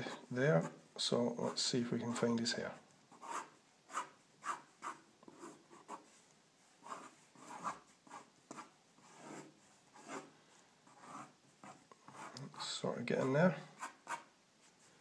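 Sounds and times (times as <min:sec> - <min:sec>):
pencil scratching on paper: 0:03.1 - 0:10.3, 0:10.9 - 0:14.3.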